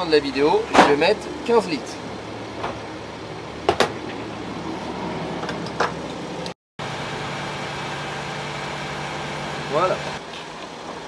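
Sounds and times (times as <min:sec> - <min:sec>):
fuel pump hum: 0:05.4 - 0:11.0.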